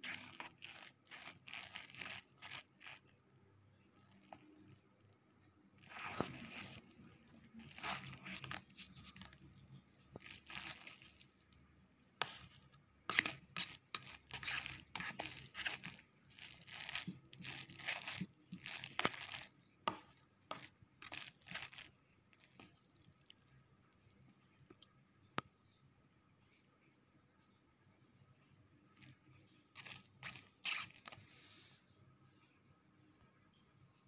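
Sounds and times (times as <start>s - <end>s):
fork stirring wet noodles: 0.0s - 3.2s, 5.8s - 25.0s, 28.8s - 31.4s.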